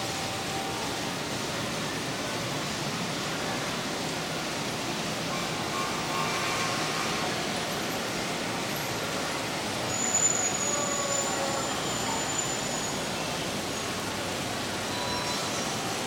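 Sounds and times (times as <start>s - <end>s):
model train rolling on track: 0.0s - 16.0s
faint high whine: 9.8s - 16.0s.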